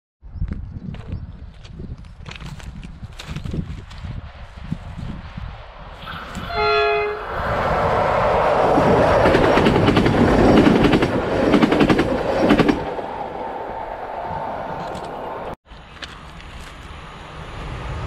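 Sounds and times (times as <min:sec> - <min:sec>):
train hum: 0:02.3 - 0:18.0
train horn blast: 0:06.0 - 0:07.4.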